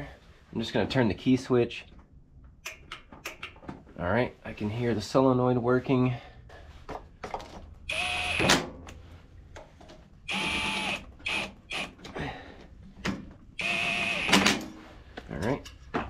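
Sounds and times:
cordless drill whining: 7.9 - 8.5, 10.3 - 12.0, 13.6 - 14.5.

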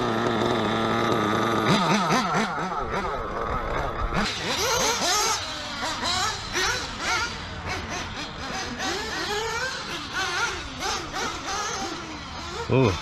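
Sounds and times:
nitro engines revving: 0.0 - 13.0.

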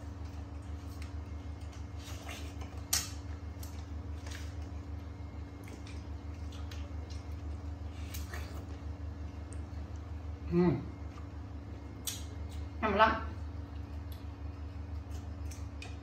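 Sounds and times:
steady low hum: 0.0 - 16.0
watermelon being bitten: 0.3 - 10.2.

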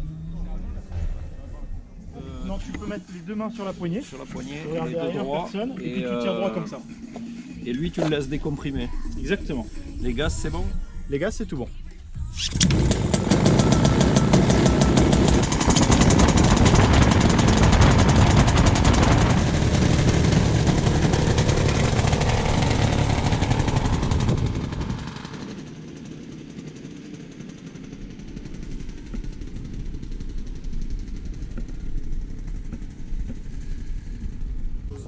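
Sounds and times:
starter cord pull: 12.4 - 14.0
small aircraft engine running rough: 12.5 - 35.0.

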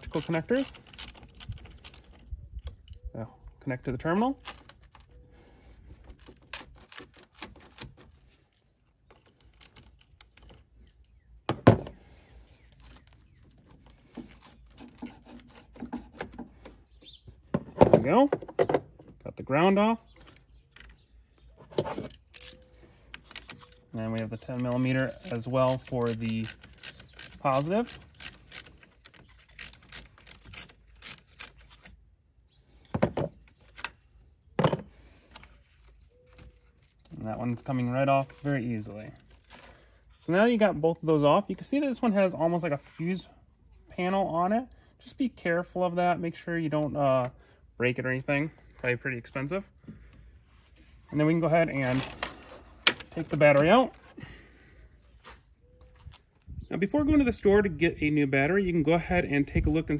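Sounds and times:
ratchet clicking: 0.1 - 2.2, 25.2 - 31.7.

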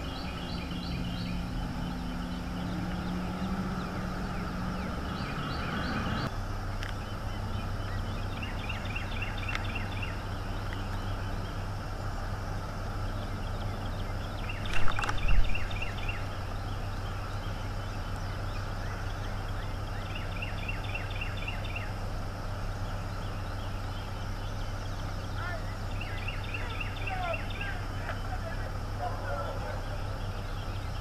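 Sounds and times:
eagles chittering: 0.0 - 31.0
steady low hum: 0.0 - 31.0.

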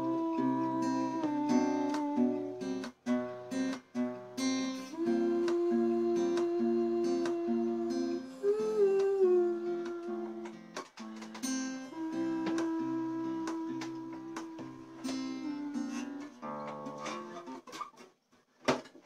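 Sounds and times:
man singing wordless notes: 0.0 - 2.8, 4.8 - 10.6, 11.9 - 16.4
acoustic guitar picked and strummed: 0.0 - 19.0.

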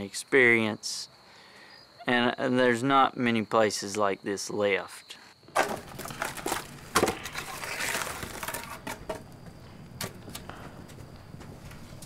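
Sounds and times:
firewood knocking and crunching: 5.4 - 12.0.

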